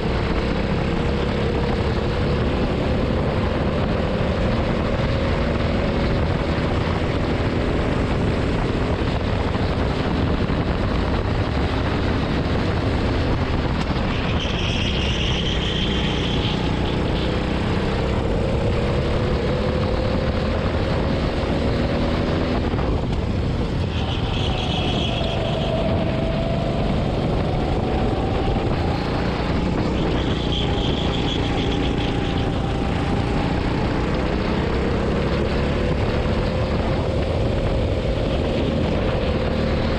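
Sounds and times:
kart engine running: 0.0 - 39.9
rushing noise: 9.0 - 39.9.

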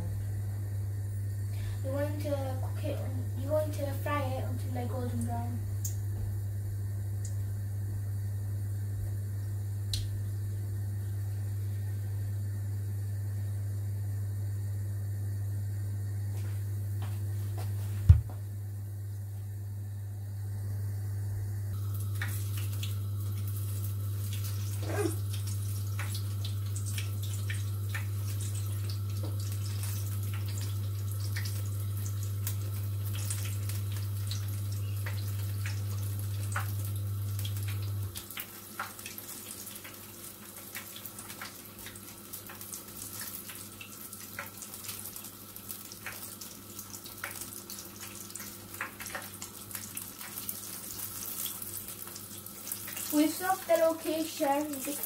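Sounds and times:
food deep-frying in oil: 1.6 - 7.6, 21.7 - 55.0.

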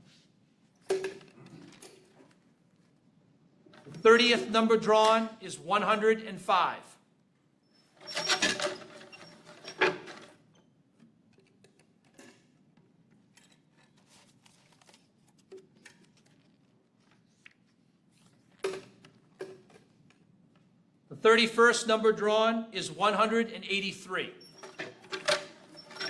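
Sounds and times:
wooden lottery drum clattering: 8.0 - 10.3, 24.6 - 26.0.

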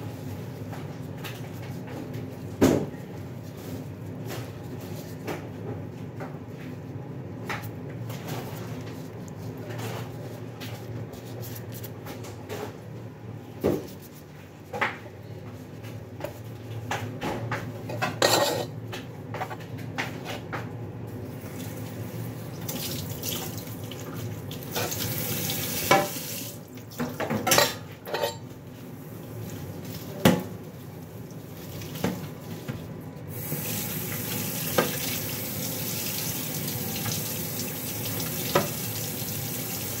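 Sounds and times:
dishes and utensils clattering: 17.9 - 18.8, 27.0 - 28.5
water running from tap: 21.4 - 27.1, 31.2 - 32.4, 33.3 - 40.0.

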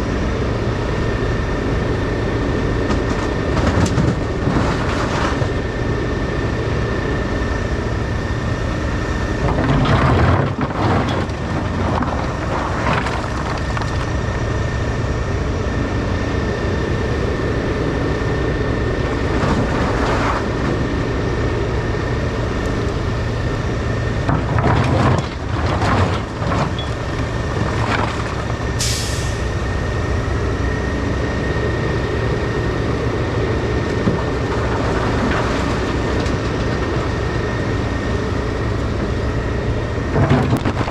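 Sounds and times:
diesel engines running: 0.0 - 40.9
rocks crashing into steel truck bed: 9.4 - 14.1, 24.2 - 28.6, 40.1 - 40.9.

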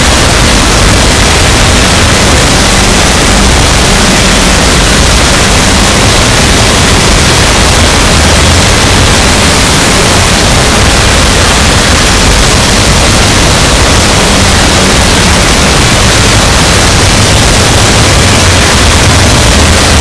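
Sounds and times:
harsh static noise: 0.0 - 20.0.

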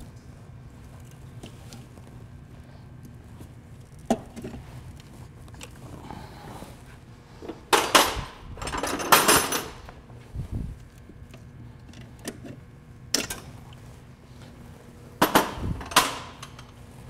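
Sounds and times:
metal tools scraping and clattering: 7.7 - 9.8.

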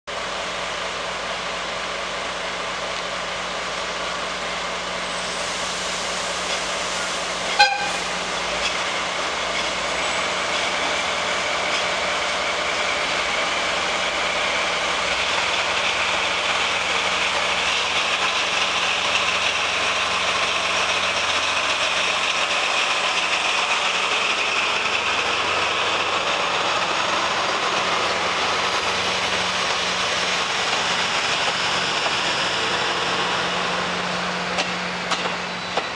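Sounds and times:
diesel locomotive running: 0.1 - 35.9
train coaches rolling past: 0.1 - 35.9
locomotive horn toot: 7.5 - 8.2.

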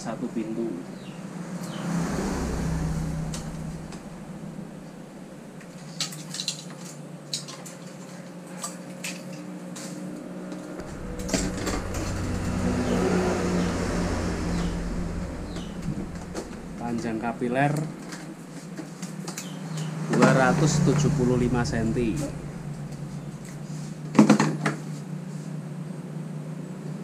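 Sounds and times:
rushing noise: 1.2 - 5.8, 10.8 - 24.2.

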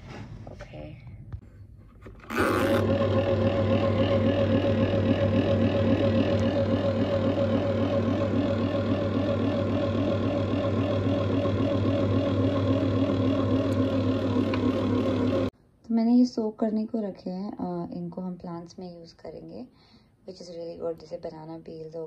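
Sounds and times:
dough mixer motor humming: 2.3 - 15.5.

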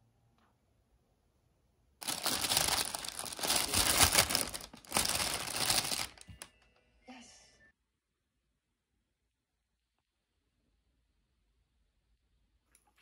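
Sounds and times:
plastic bag crinkling: 2.0 - 6.5.

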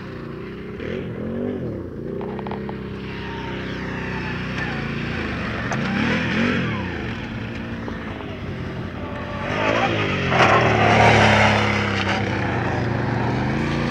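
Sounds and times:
quad bike engine revving: 0.0 - 13.9.

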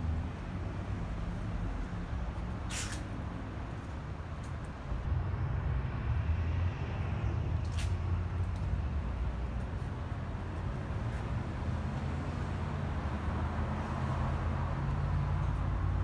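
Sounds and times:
short hisses: 2.7 - 3.1.

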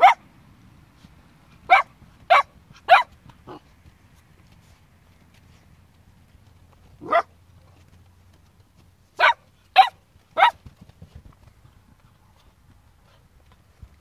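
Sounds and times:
puppy barking: 0.0 - 0.2, 1.7 - 3.6, 7.0 - 7.3, 9.2 - 10.6.

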